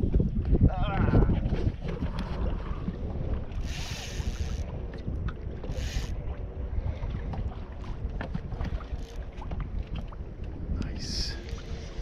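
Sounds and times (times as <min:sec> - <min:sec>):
wind buffeting microphone: 0:00.0 - 0:12.0
fishing reel drag buzzing: 0:03.6 - 0:04.7, 0:05.6 - 0:06.2.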